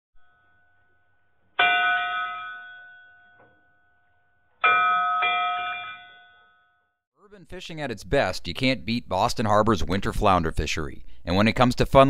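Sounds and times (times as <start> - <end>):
bell-like chime: 0.2 - 7.0.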